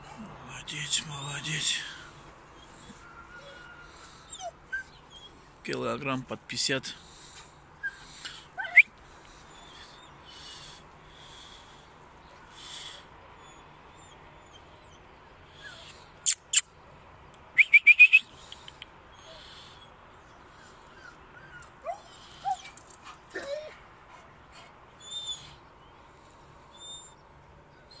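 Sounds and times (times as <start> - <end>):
dog whining: 2.6 - 5.4, 7.8 - 8.9, 13.4 - 15.0, 20.9 - 23.8.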